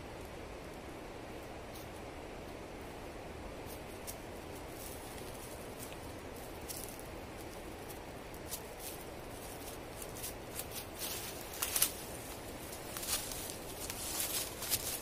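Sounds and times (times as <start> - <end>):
steady low hiss: 0.0 - 15.0
footsteps on dry leaves: 6.6 - 15.0.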